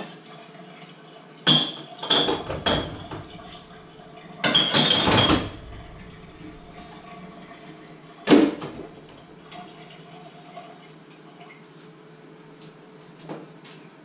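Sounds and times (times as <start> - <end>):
dishes knocking: 1.5 - 3.8, 4.4 - 7.0
metal cookware clattering and scraping: 1.6 - 7.5.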